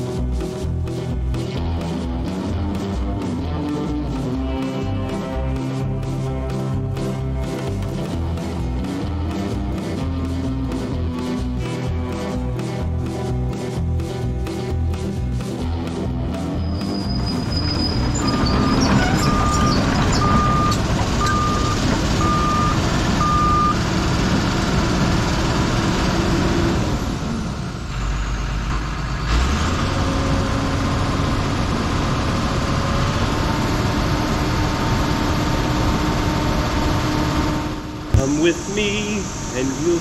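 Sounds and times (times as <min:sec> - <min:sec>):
heavy diesel engine running: 0:00.0 - 0:40.0
backup alarm beeping: 0:18.2 - 0:23.8.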